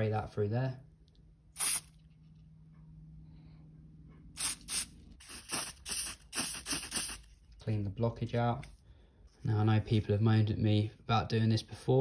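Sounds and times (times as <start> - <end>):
aerosol spray hisses: 1.6 - 1.9, 4.4 - 7.3.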